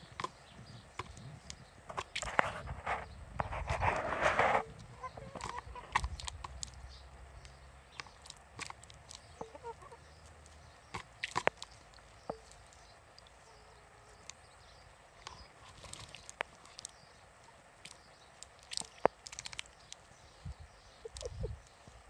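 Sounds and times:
hens clucking softly: 0.0 - 6.9, 8.0 - 14.4, 19.9 - 22.0.

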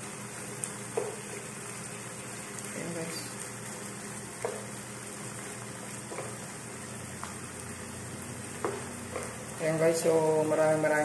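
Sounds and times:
food sizzling in oil: 0.0 - 11.0
wooden spatula knocking on pan: 0.9 - 1.2, 8.6 - 9.3.

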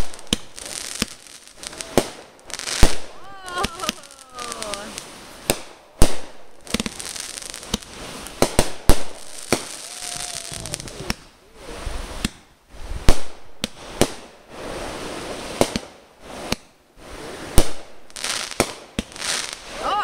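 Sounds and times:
fireworks bangs: 0.0 - 20.0
fireworks crackling and fizzing: 0.0 - 20.0.

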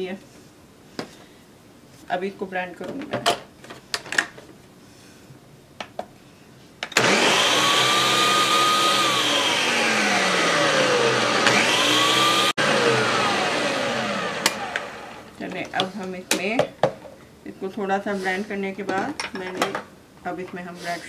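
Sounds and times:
blender motor whine: 7.0 - 15.3.

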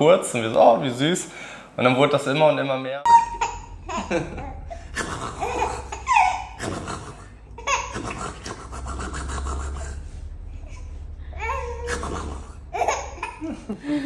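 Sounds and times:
baby laughing: 3.1 - 10.0, 11.4 - 13.8.

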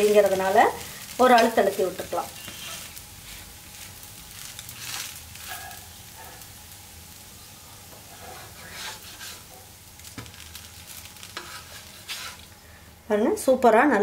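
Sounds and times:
batter sizzling in oil: 0.0 - 14.0
spatula scraping pan: 1.2 - 3.5, 7.9 - 10.1, 11.0 - 12.5.

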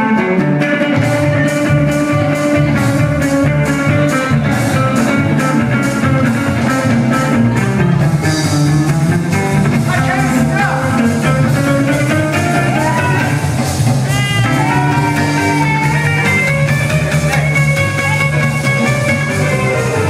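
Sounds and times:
electric guitar playing rock: 0.0 - 20.0
person singing: 14.1 - 18.5.

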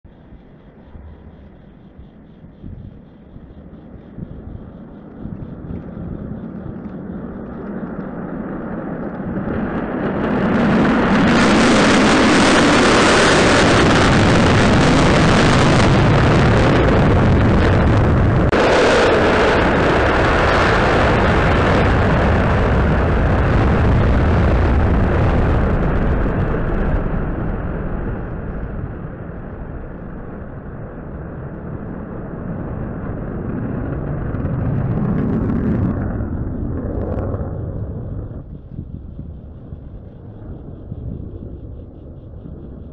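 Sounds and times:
jet engines roaring: 0.2 - 42.9.

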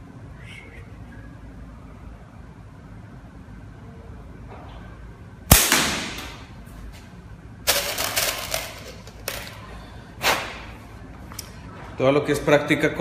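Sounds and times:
slingshot crack: 5.5 - 6.5.

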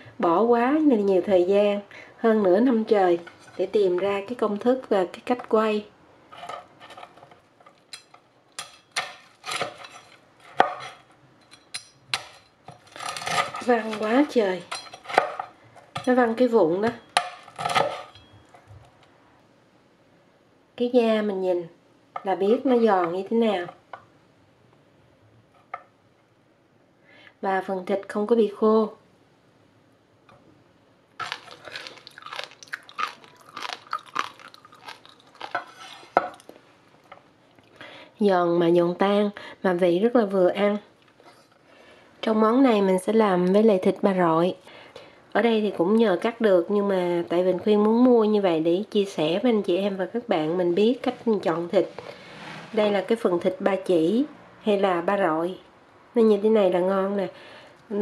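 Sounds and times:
crispy pork skin crunching: 31.2 - 36.5.

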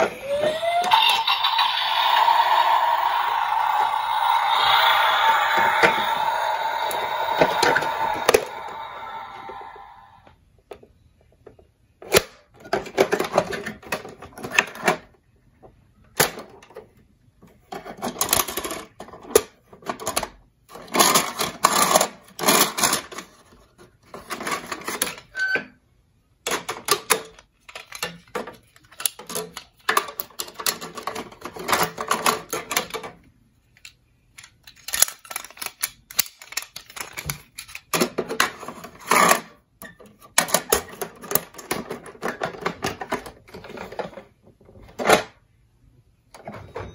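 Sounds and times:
plastic toy parts clicking and rattling: 11.4 - 15.2, 16.1 - 25.3, 26.4 - 45.4.

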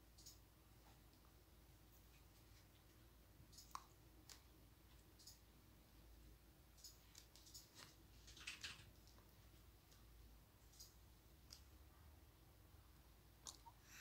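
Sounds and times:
faint clicks and rustles: 6.7 - 11.9.

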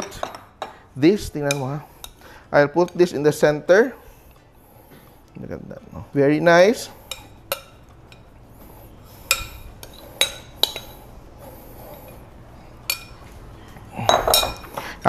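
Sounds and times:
utensils clinking on dishes: 12.8 - 13.3, 14.0 - 14.9.

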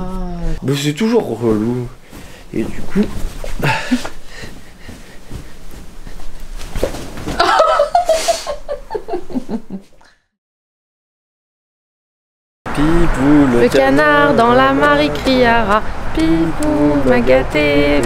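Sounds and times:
bedsheet rustling on microphone: 1.4 - 9.8
person laughing in breathy bursts: 3.0 - 5.0, 7.4 - 9.9.

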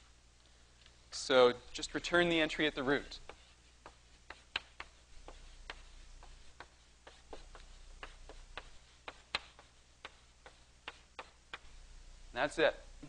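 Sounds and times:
chalk tapping on a blackboard: 2.4 - 11.8.

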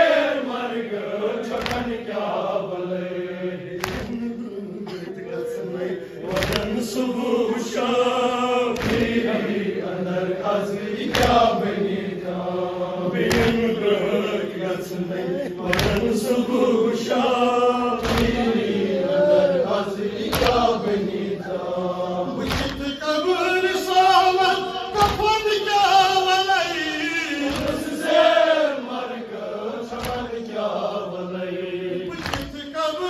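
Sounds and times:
man chanting into a microphone: 0.0 - 8.8, 22.2 - 28.2, 32.0 - 33.0
chest beating slaps: 1.5 - 2.0, 3.8 - 4.3, 6.3 - 6.9, 8.7 - 9.5, 11.0 - 11.7, 13.2 - 13.7, 15.6 - 16.2, 18.0 - 18.7, 20.2 - 20.8, 22.4 - 23.0, 24.9 - 25.4, 27.4 - 28.0, 29.9 - 30.4, 32.1 - 32.6.

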